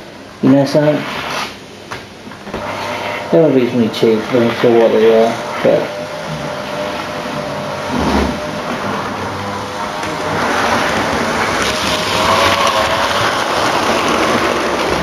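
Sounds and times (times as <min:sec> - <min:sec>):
faint wavering motor whine: 0:02.5 - 0:15.0
model train wheels on rails: 0:09.9 - 0:15.0.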